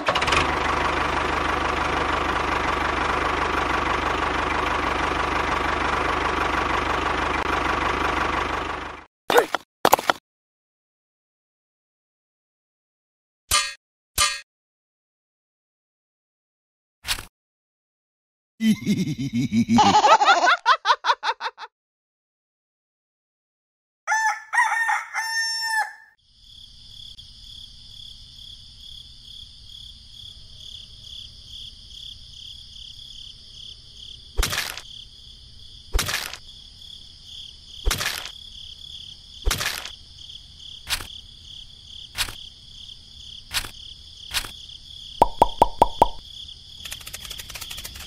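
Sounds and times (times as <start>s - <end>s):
rooster crowing: 24.1s - 26.2s
insects chirring: 26.2s - 48.0s.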